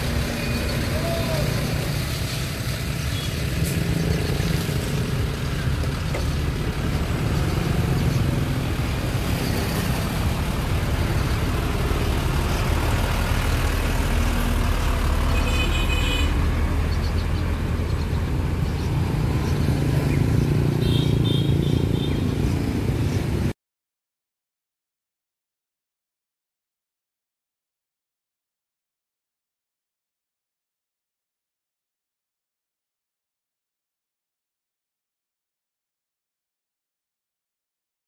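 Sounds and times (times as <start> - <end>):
low engine rumble: 0.0 - 21.0.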